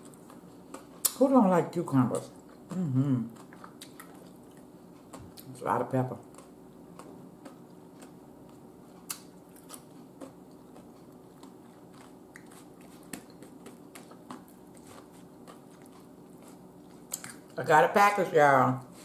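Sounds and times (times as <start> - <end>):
person chewing crisp food: 0.0 - 1.2, 2.2 - 17.6.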